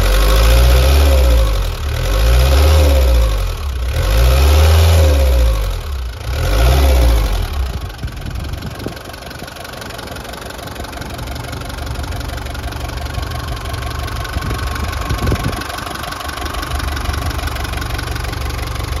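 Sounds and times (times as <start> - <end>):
diesel engine revving and idling: 0.0 - 19.0.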